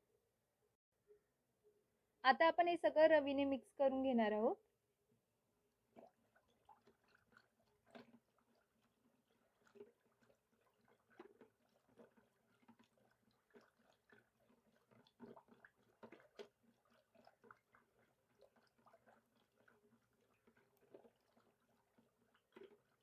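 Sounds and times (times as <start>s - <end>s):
buttermilk sloshing while churned: 5.7s - 23.0s.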